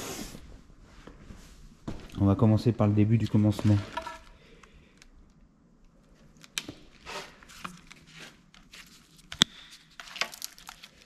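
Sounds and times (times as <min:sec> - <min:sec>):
wiring harness rustling: 0:06.0 - 0:11.0.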